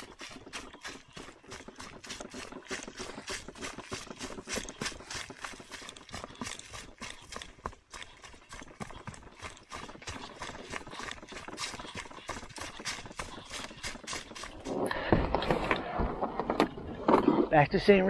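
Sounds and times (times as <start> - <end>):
footsteps crunching on leaf litter: 0.0 - 14.8
canoe handling rustling and knocks: 10.9 - 17.6.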